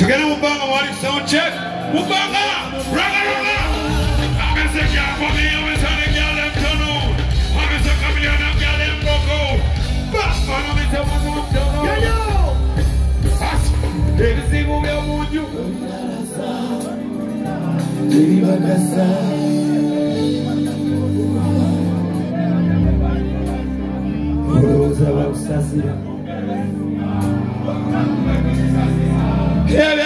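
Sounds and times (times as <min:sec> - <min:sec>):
band with heavy bass line: 0:00.0 - 0:30.0
person singing: 0:13.2 - 0:30.0.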